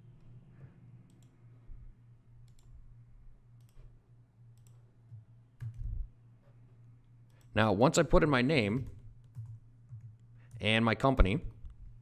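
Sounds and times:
low steady hum: 0.0s - 12.0s
computer mouse clicks: 1.0s - 1.4s, 2.4s - 2.8s, 3.6s - 5.9s.

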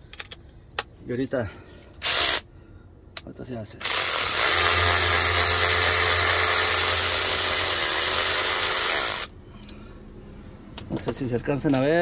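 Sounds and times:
power tool spinning: 2.0s - 2.4s, 3.8s - 9.3s.

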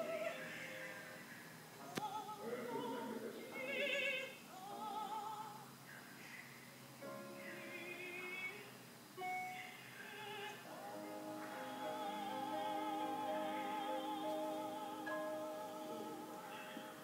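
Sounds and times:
operatic singing voice: 10.1s - 17.0s
sustained accompanying notes: 10.7s - 17.0s.

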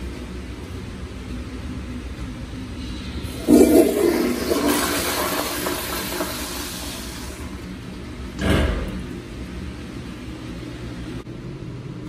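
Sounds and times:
toilet flushing: 2.8s - 9.6s.

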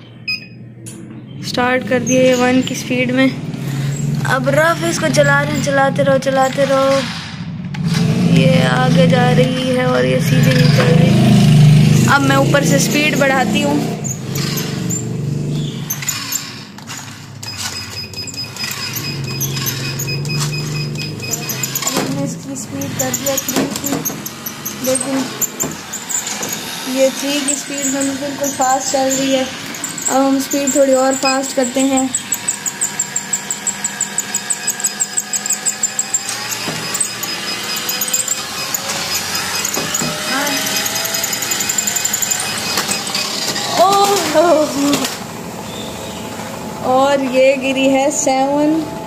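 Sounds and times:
rhythmic high squeak: 1.4s - 7.2s, 8.2s - 45.0s
treadmill humming: 17.3s - 49.0s.

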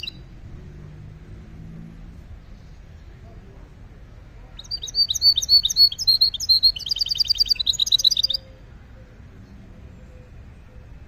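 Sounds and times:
finch singing chirps and trills: 0.0s - 0.3s, 4.6s - 8.6s.

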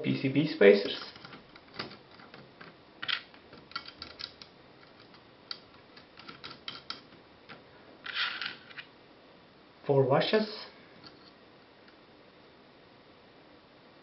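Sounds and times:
washers scraping on table: 8.0s - 8.9s.

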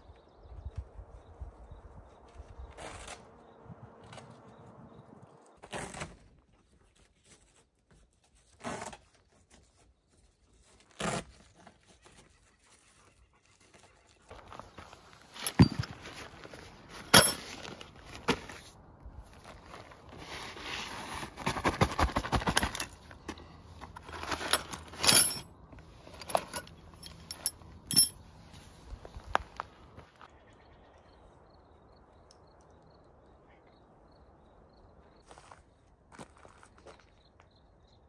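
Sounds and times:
rustling: 5.6s - 29.7s
clinks and knocks: 15.4s - 16.2s, 22.1s - 28.2s.

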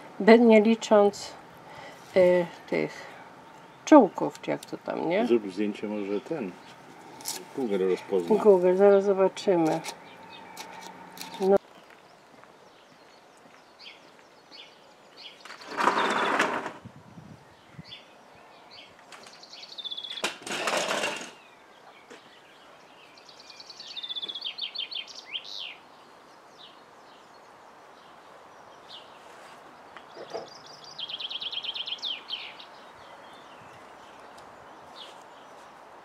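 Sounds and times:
songbird trilling: 8.1s - 11.6s, 23.1s - 25.8s, 30.1s - 34.3s.

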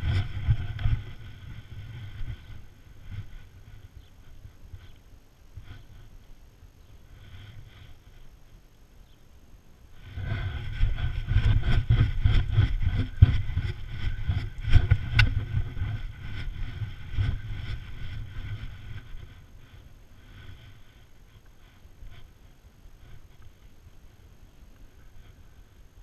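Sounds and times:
camera knocking and rattling: 10.4s - 19.1s.

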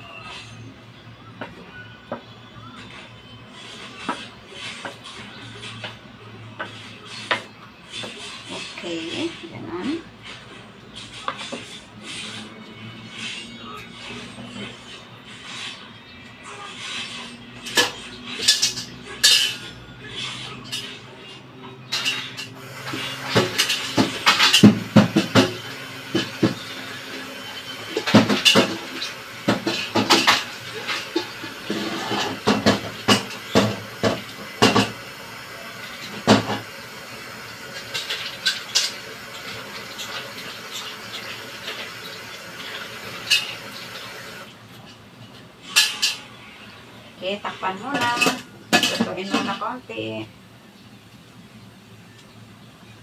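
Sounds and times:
pots and pans clanking: 17.6s - 19.8s, 21.8s - 46.3s, 47.8s - 49.7s.

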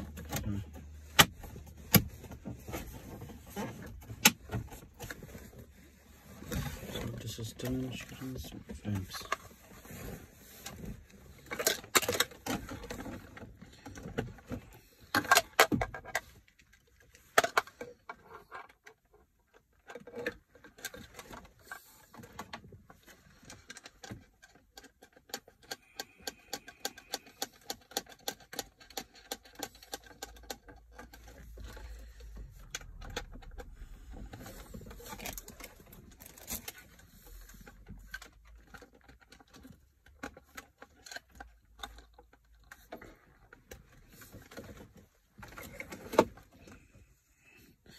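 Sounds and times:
plastic clicks and rattles: 10.5s - 46.9s.

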